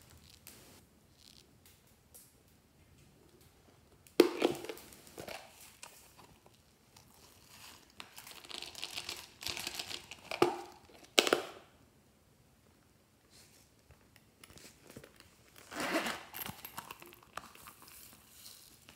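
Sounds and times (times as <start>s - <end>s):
snack wrapper crinkling: 4.3s - 11.4s, 14.9s - 18.9s.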